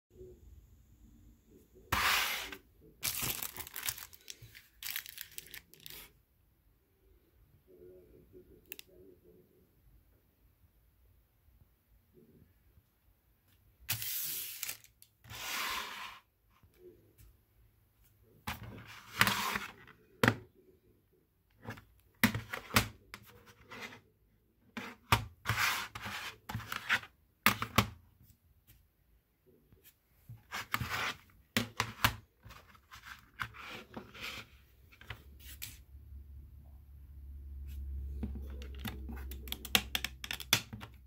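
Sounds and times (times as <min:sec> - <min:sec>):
plastic crinkling and rubbing: 0:03.0 - 0:06.1.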